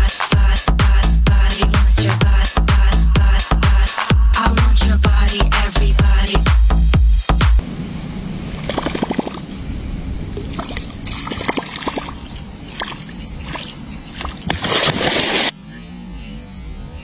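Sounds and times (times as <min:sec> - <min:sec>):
water sloshing around boat: 0:10.4 - 0:15.5
fish thrashing and splashing: 0:10.5 - 0:15.5.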